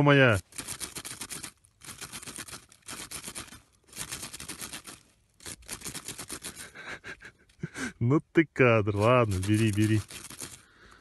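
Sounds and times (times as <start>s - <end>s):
fox scratching in packed snow: 9.0s - 10.6s.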